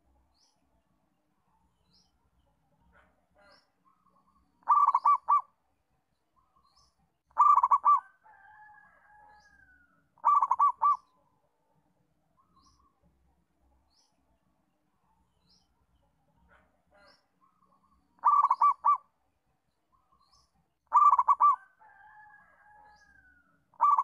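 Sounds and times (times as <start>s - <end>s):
faint high bird chirps: 3.4s - 11.4s, 12.3s - 13.2s, 16.9s - 24.0s
dove cooing: 4.6s - 5.5s, 7.4s - 8.2s, 10.2s - 11.1s, 18.2s - 19.0s, 20.9s - 22.0s, 23.8s - 24.0s.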